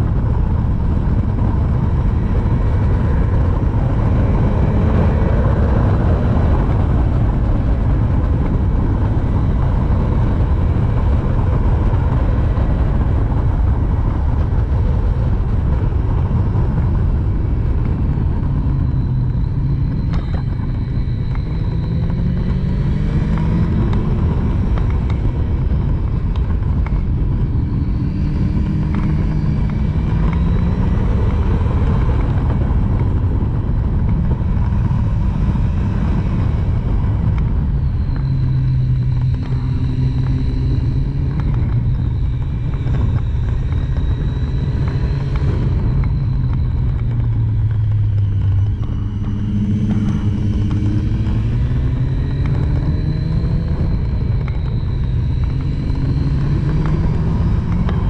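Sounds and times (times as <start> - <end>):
motorcycle engine under way: 0.0 - 58.0
wind rushing on microphone: 0.0 - 58.0.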